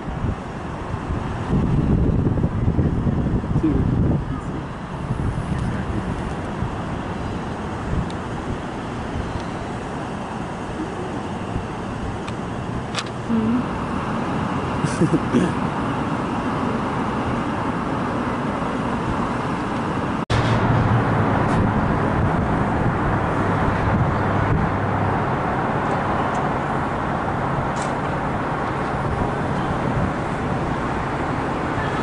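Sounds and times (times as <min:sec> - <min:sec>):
city traffic noise: 0:00.0 - 0:32.0
low engine drone: 0:00.0 - 0:32.0.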